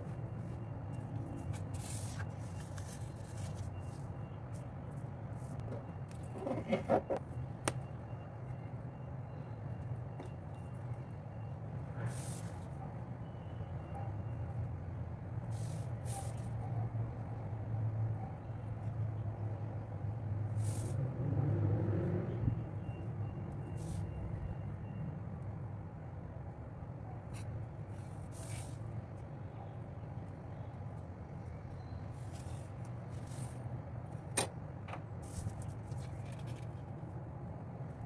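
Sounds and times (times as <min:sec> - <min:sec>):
pencil scratching and paper rustling: 0:01.4 - 0:04.7.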